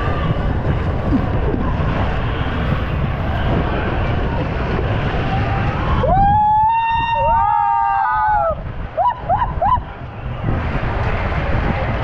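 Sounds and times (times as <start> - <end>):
rushing water and wind: 0.0 - 12.0
people whooping and shouting: 5.1 - 12.0.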